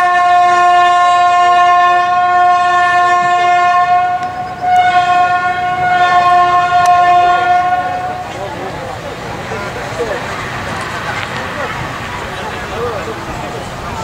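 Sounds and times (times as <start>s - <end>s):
steam locomotive whistle: 0.0s - 9.0s.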